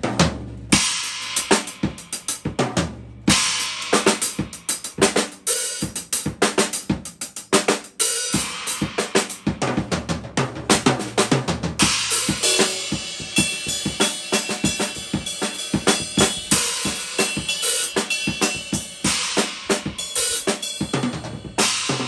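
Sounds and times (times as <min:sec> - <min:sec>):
drum kit playing fast: 0:00.0 - 0:22.0
cymbal crashes: 0:11.8 - 0:22.0.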